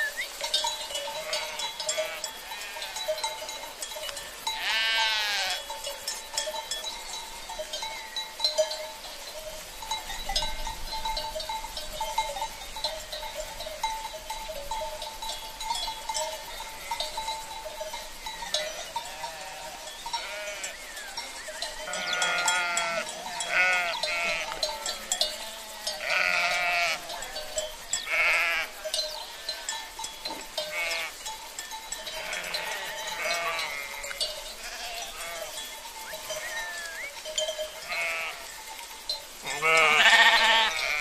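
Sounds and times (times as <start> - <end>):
sheep bleating: 1.1 - 3.1, 4.6 - 5.7, 18.8 - 20.8, 21.8 - 28.8, 30.6 - 31.2, 32.0 - 35.6, 36.4 - 37.1, 37.8 - 38.5, 39.4 - 41.0.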